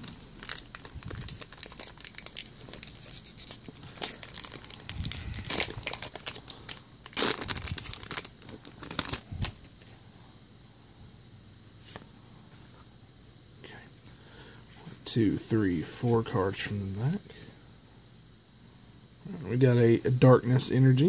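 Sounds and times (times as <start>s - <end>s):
foil wrapper crinkling and tearing: 0.0s - 9.6s.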